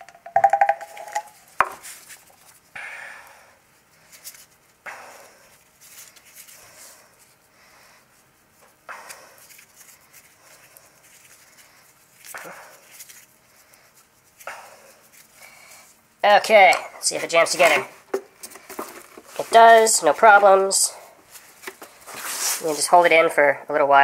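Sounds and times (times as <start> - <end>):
clink and sharp knock: 0.3 - 1.3.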